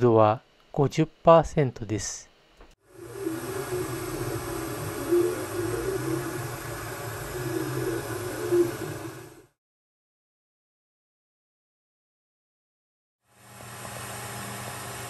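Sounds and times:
printer fans whirring: 2.9s - 9.5s
printer motor hum wavering: 2.9s - 9.5s.

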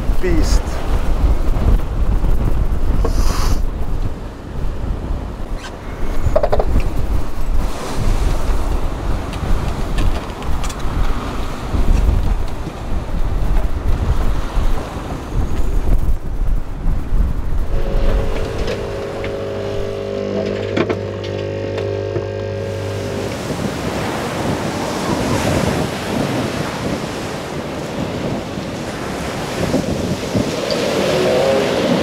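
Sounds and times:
wind and waves rushing: 0.0s - 32.0s
coffee machine pump humming: 17.7s - 23.4s.

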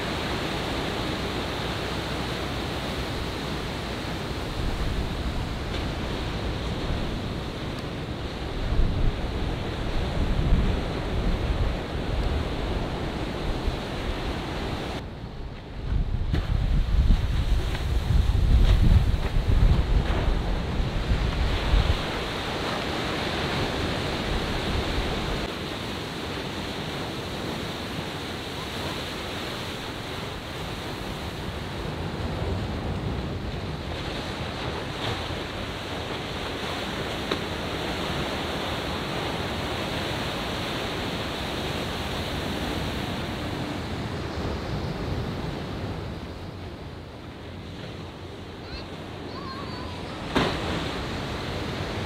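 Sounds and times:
wind buffeting microphone: 0.0s - 25.5s
ocean surf breaking: 0.0s - 52.0s.

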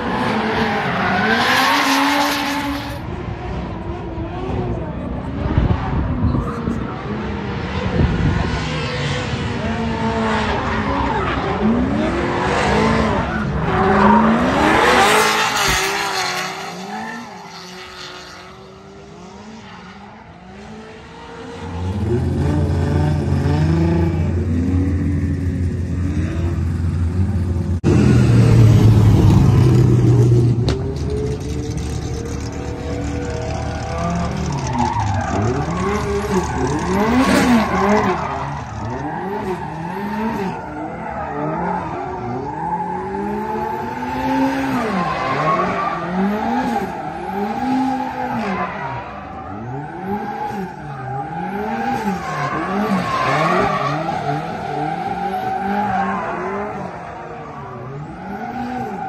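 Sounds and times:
car engine revving: 20.2s - 59.0s.

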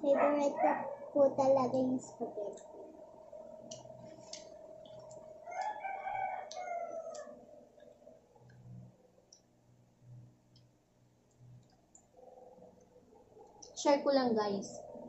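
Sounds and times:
rooster crowing: 5.4s - 7.4s.

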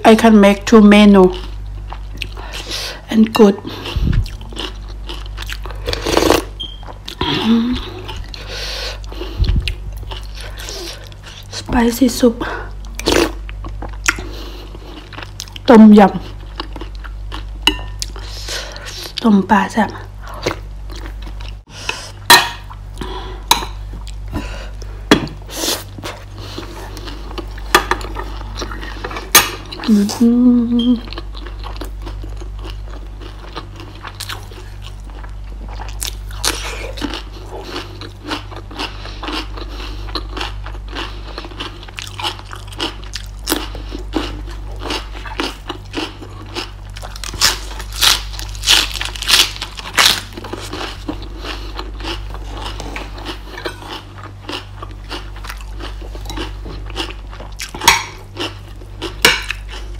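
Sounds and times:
person chewing vegetables: 1.1s - 11.7s, 12.5s - 19.2s, 20.0s - 59.9s
person humming: 7.2s - 8.0s, 29.9s - 31.1s.

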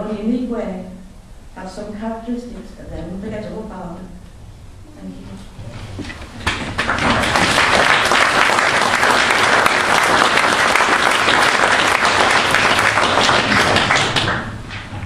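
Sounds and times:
large audience applauding: 6.4s - 15.0s.

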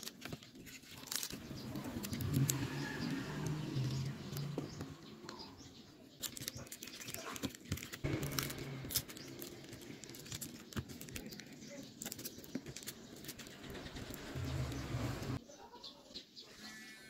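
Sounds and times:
plastic film crinkling: 0.0s - 2.6s, 6.2s - 14.1s
small scratches and clicks: 0.0s - 5.4s, 6.2s - 15.4s
low hum: 8.0s - 10.5s.

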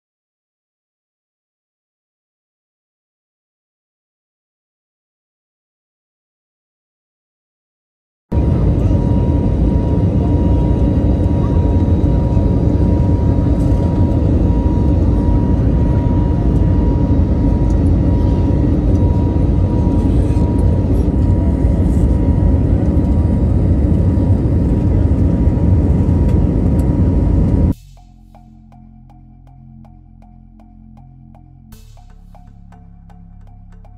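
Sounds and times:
jet engine high whine: 8.3s - 33.9s
jet engine rumble: 8.3s - 33.9s.

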